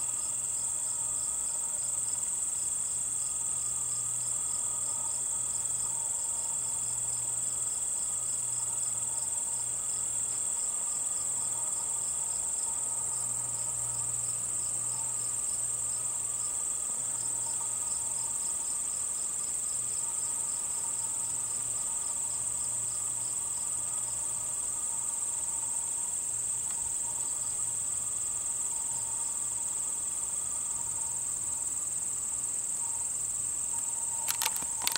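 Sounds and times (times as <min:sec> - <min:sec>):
insect chirping: 0:00.0 - 0:34.9
insect trill: 0:00.0 - 0:34.9.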